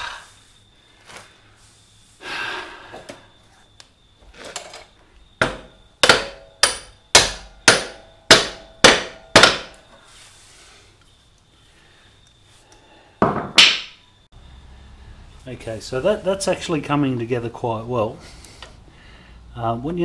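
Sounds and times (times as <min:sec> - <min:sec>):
hammer striking metal bolt: 0:05.4 - 0:09.8.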